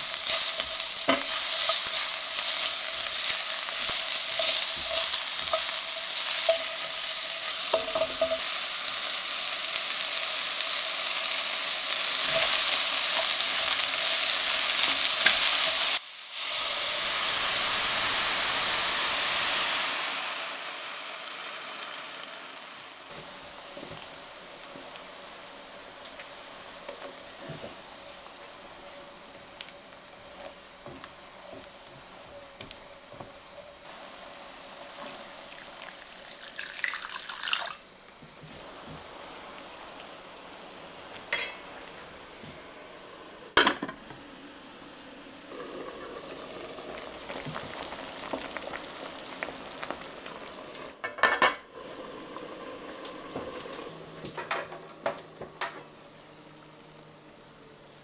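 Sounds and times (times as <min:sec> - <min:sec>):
liquid simmering in a pan: 0:00.0 - 0:58.0.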